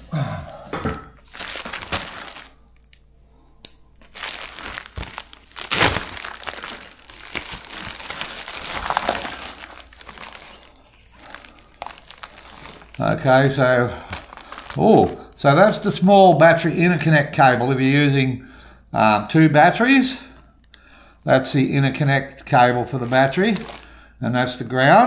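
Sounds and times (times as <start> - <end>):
plastic packaging crinkling: 1.2 - 3.1, 3.9 - 16.1, 21.5 - 24.1.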